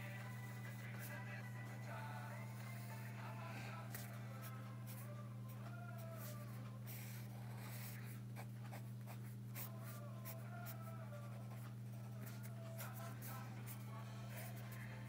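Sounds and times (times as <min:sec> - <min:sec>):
steady low hum: 0:00.0 - 0:15.0
pen scratching on paper: 0:06.0 - 0:14.9.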